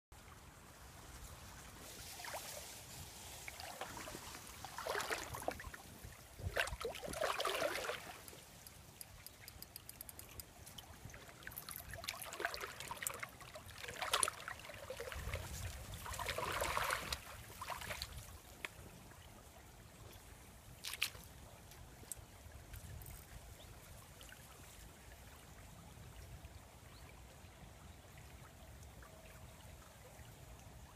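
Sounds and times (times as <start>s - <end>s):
river water splashing: 0.2s - 19.2s
faint water trickle: 0.2s - 30.9s
sharp click: 8.3s - 10.5s.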